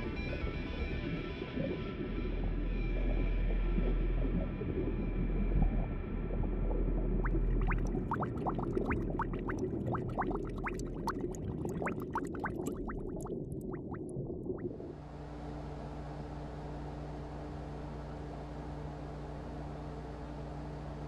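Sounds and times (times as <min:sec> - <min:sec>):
low steady rumble: 0:00.0 - 0:21.0
underwater bubbling chirps: 0:03.0 - 0:14.8
steady hum: 0:03.4 - 0:16.0.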